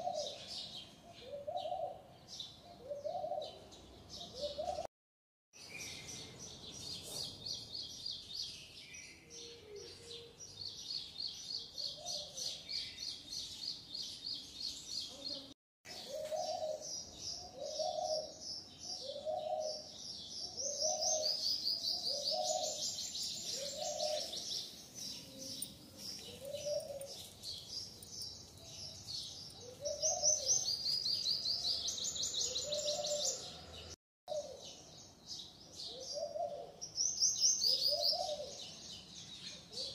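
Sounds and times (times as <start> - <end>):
birds chirping in high trills: 15.9 - 39.9.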